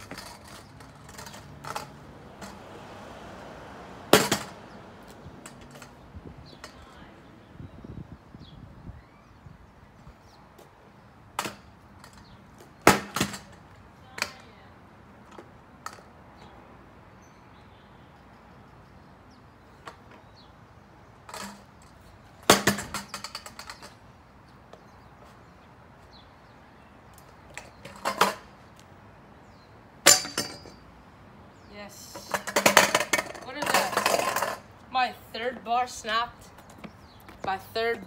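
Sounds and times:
metal scooter clanking on concrete: 0.0s - 2.7s, 4.1s - 7.1s, 11.4s - 14.6s, 21.2s - 24.1s, 27.5s - 28.6s, 30.0s - 30.9s, 31.9s - 38.0s.

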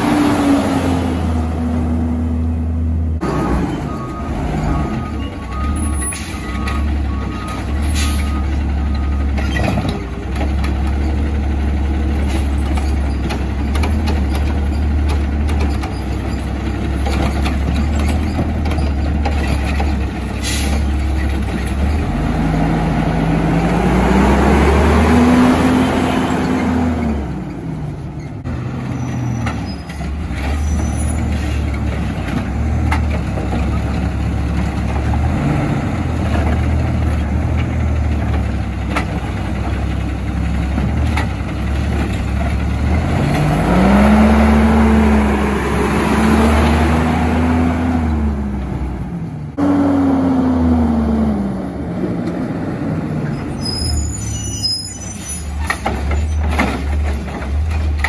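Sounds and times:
garbage truck engine revving: 0.0s - 27.8s, 28.4s - 58.0s.

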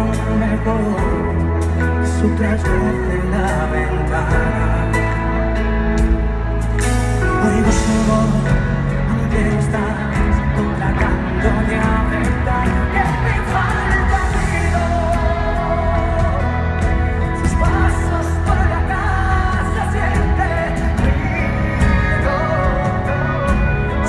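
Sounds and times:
live pop band: 0.0s - 24.0s
person singing: 0.0s - 24.0s
steady bass line: 0.0s - 24.0s.

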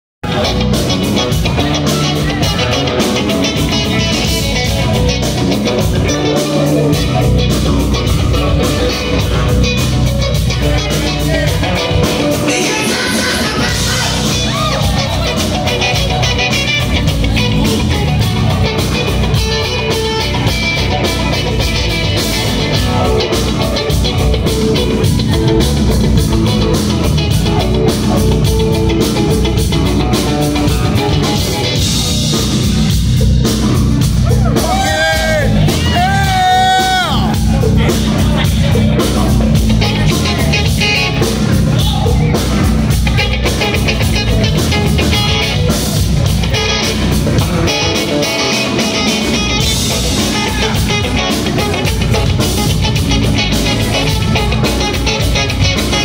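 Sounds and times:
drum kit: 0.2s - 56.0s
electric guitar: 0.2s - 56.0s
keyboard: 0.2s - 56.0s
man singing: 10.6s - 15.8s.

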